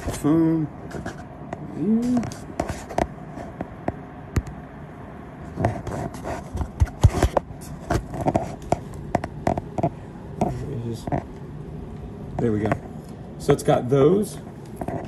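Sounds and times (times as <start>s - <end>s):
phone handling clicks and scrapes: 5.6s - 11.3s.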